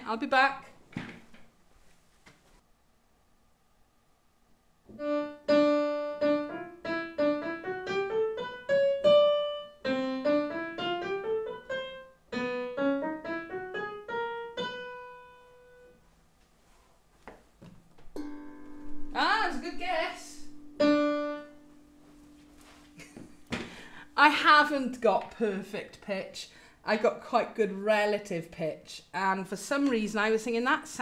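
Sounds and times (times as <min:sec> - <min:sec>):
piano playing rising scales: 0:05.0 - 0:15.9, 0:18.2 - 0:24.2.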